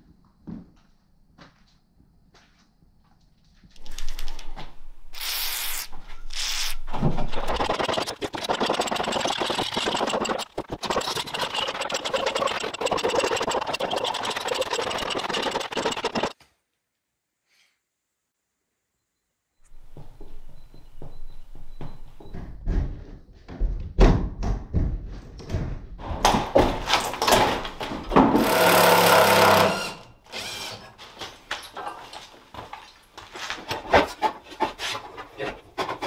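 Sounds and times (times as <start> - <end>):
machine rattling loudly: 7.3 - 16.4, 28.4 - 30.0.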